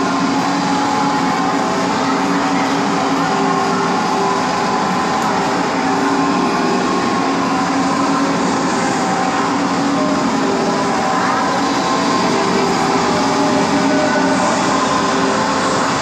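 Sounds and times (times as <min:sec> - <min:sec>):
large crowd din in hall: 0:00.0 - 0:16.0.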